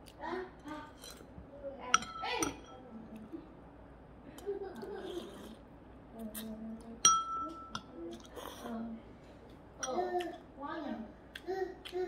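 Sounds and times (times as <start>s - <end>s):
metal utensil clinking on bowl: 1.9s - 2.8s, 7.0s - 7.9s.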